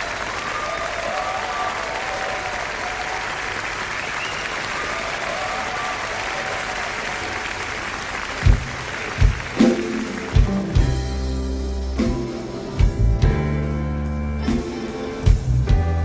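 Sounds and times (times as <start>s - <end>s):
audience applauding: 0.0s - 11.0s
music: 8.4s - 16.0s.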